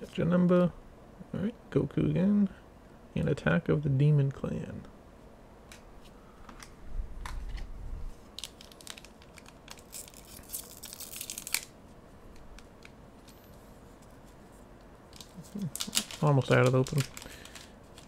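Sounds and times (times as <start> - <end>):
foil pack tearing and crinkling: 8.3 - 11.8, 15.1 - 18.0.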